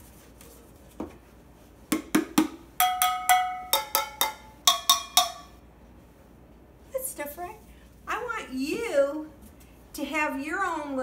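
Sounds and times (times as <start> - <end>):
sticks tapping tin-can drums: 1.9 - 5.6.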